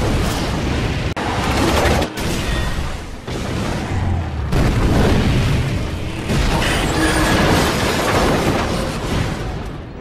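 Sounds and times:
low rumble with debris: 0.0 - 10.0
explosion blasts: 2.2 - 6.7.

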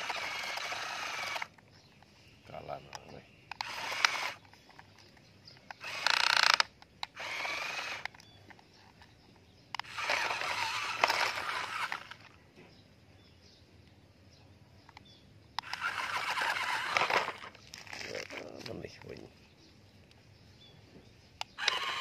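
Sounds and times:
toy wheels scraping on gravel: 0.0 - 1.6, 3.6 - 5.1, 5.7 - 9.1, 9.8 - 12.4, 15.6 - 19.3, 21.5 - 22.0.

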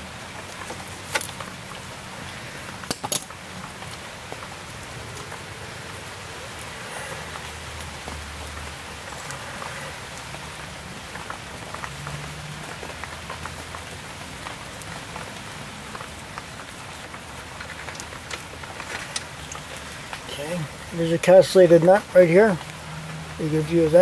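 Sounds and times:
steady hiss: 0.0 - 24.0.

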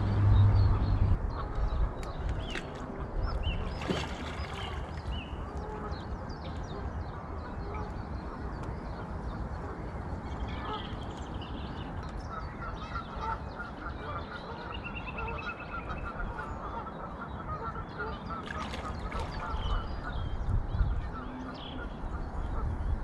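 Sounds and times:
steady low rushing noise: 0.0 - 2.3.

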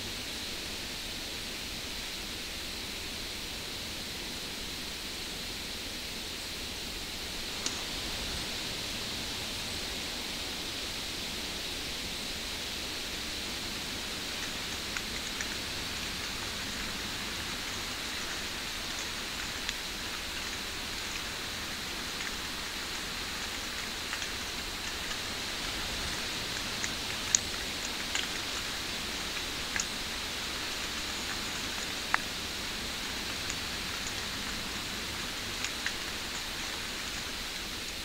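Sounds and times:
outdoor ambience hiss: 0.0 - 38.0
sharp ticks: 14.2 - 37.9.

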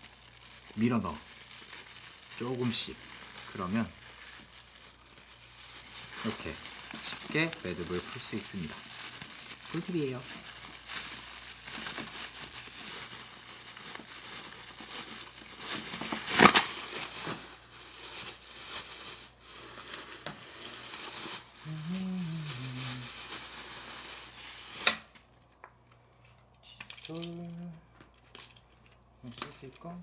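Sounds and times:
plastic bag crinkling: 0.0 - 30.0
low voice hum: 21.6 - 23.1, 26.6 - 27.9.

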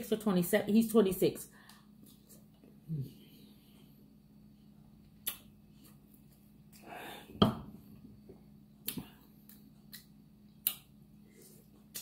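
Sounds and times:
mouth smacks while eating: 5.2 - 6.0, 8.8 - 10.9, 11.7 - 12.0.

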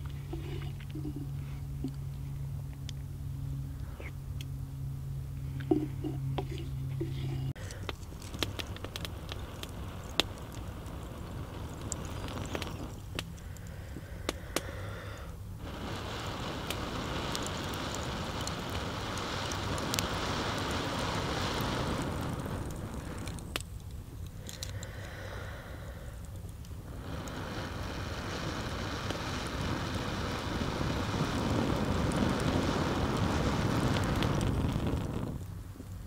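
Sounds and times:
wood embers crackling and popping: 0.0 - 3.1, 5.4 - 36.0
breath blowing hiss: 7.0 - 23.5, 24.3 - 35.4.

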